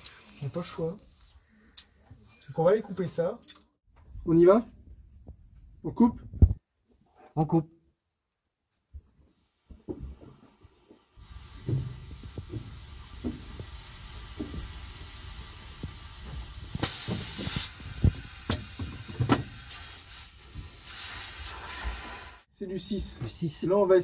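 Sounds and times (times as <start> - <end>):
compressed air hissing: 9.3 - 22.5
low knocks on hose: 11.6 - 13.6.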